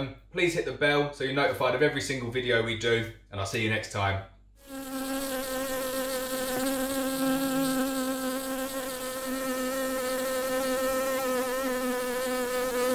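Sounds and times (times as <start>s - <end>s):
bee buzzing: 4.6s - 12.9s.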